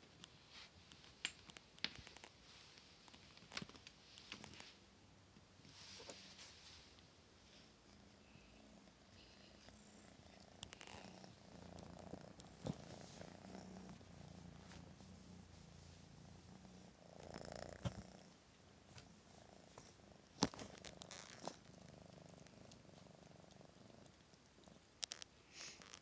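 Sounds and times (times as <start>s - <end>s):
kittens purring: 0.0s - 26.0s.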